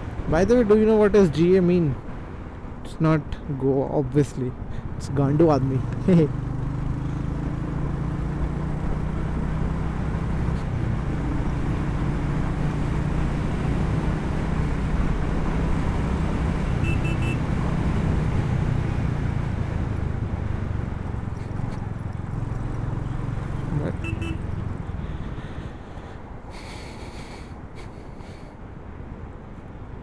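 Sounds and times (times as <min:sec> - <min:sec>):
wind and road noise: 0:00.0 - 0:30.0
motorcycle engine cruising: 0:04.9 - 0:26.0
short high beeps: 0:16.8 - 0:17.4.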